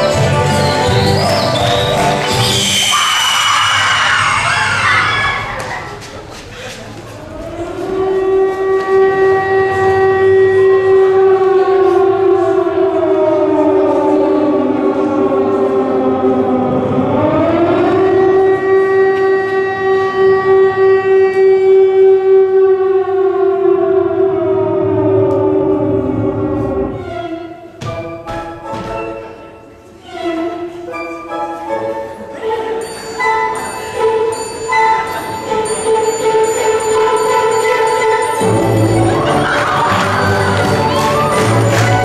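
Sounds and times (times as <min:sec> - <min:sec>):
siren wailing: 0:00.2 - 0:05.7, 0:07.4 - 0:27.2.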